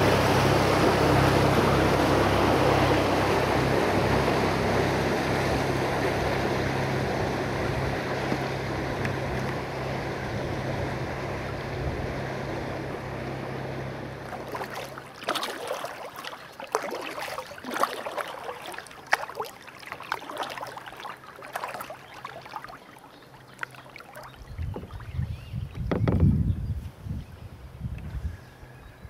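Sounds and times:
paddle splashing water: 0:00.0 - 0:26.2
choppy water: 0:00.0 - 0:26.8.

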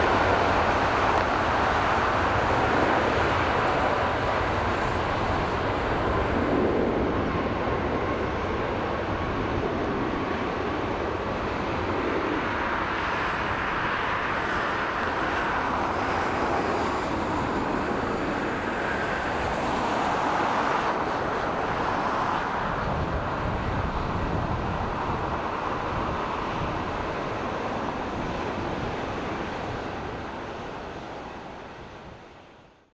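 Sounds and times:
jet engines at takeoff: 0:00.0 - 0:32.9.

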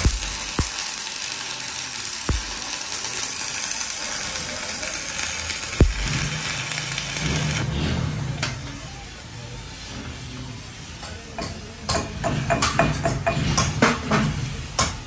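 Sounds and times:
sharp clicks: 0:00.0 - 0:00.9, 0:02.2 - 0:02.6
welding arc crackling hiss: 0:00.0 - 0:07.7.

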